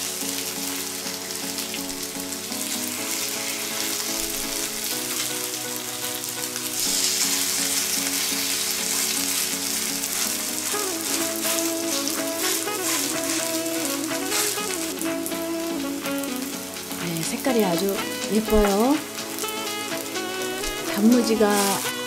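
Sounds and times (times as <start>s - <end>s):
pancakes sizzling in oil: 0.0s - 22.0s
soft background music: 0.0s - 22.0s.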